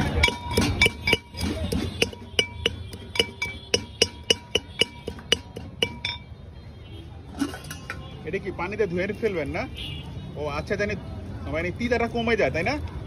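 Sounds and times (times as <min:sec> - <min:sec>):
pestle clinking in mortar: 0:00.0 - 0:06.3.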